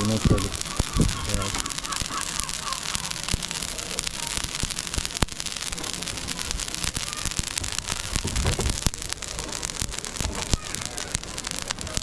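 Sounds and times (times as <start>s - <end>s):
charcoal crackling and popping: 0.0s - 12.0s
fish sizzling on grill: 0.0s - 12.0s
low rumble: 7.5s - 10.4s.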